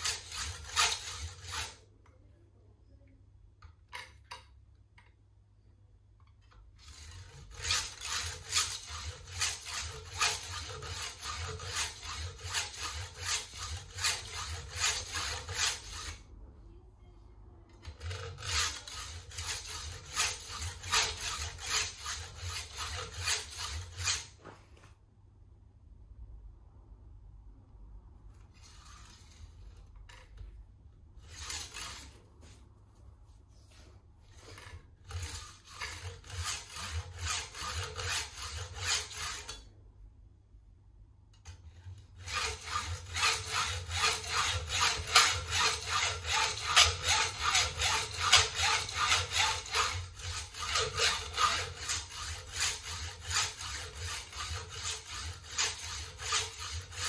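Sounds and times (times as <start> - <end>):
hand hacksaw sawing: 0.0 - 1.8, 6.8 - 16.2, 17.8 - 24.4, 31.2 - 32.2, 34.3 - 39.7, 41.7 - 57.0.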